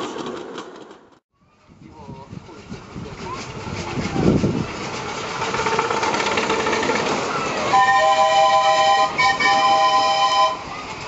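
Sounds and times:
train wheels clattering on track: 0:00.0 - 0:01.2, 0:01.9 - 0:11.0
locomotive whistle chord: 0:07.6 - 0:10.8.

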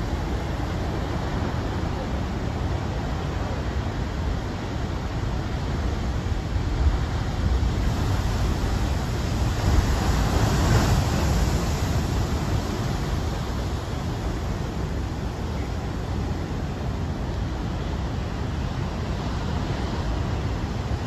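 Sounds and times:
waves breaking on rocks: 0:07.4 - 0:13.9.

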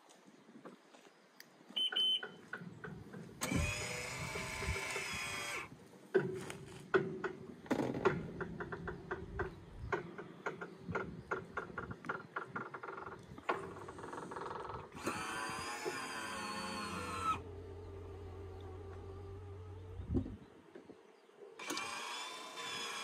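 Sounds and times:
short high beep: 0:01.8 - 0:02.4
electric actuator motor whine: 0:03.4 - 0:05.7, 0:14.8 - 0:20.4, 0:21.6 - 0:23.0.

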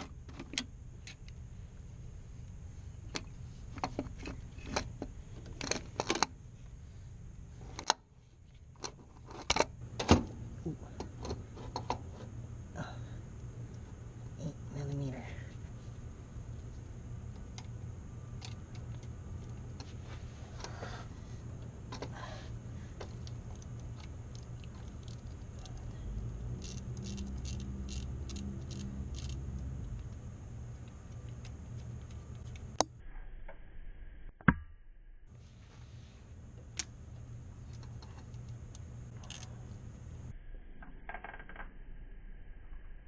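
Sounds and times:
low steady hum: 0:00.0 - 0:43.0
wrench clicking on nuts: 0:26.6 - 0:30.2.

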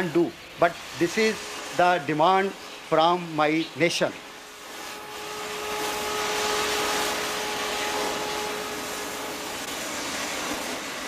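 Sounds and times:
cutting torch hissing: 0:00.0 - 0:11.0
steady hum: 0:04.2 - 0:11.0.

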